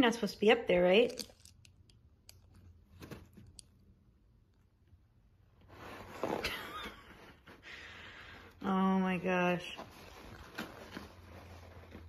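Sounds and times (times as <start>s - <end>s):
paper towels rustling: 5.6s - 12.0s.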